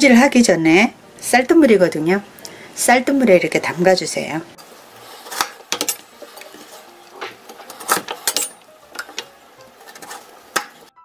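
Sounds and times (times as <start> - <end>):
knife cutting on wooden board: 5.0 - 8.4.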